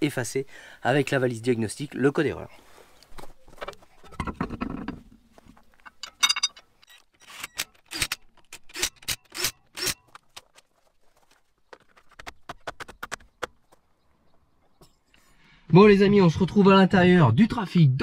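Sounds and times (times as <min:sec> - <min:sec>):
metallic clink: 0:05.9 - 0:07.0.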